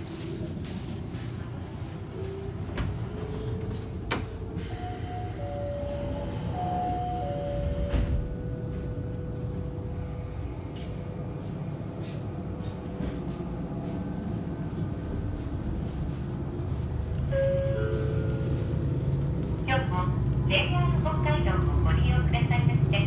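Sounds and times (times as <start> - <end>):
diesel railcar engine rumbling: 0.0 - 23.0.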